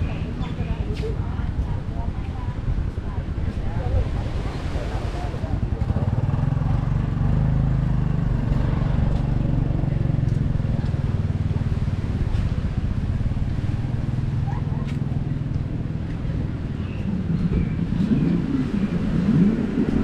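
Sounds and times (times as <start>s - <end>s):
engine droning: 0.0s - 20.0s.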